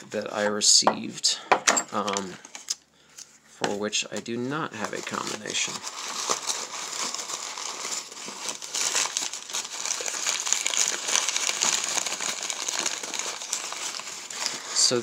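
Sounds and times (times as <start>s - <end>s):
packing paper rustling and crinkling: 4.1s - 15.0s.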